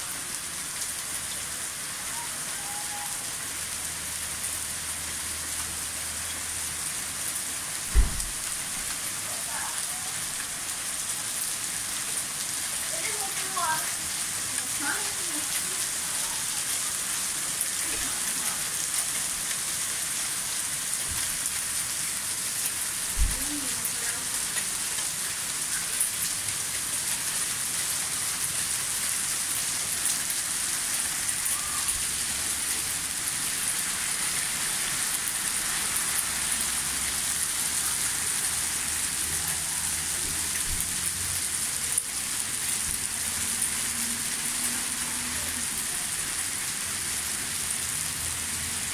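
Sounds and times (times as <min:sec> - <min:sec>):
hail and rain on paving: 0:00.0 - 0:48.9
low thump: 0:07.9 - 0:08.5.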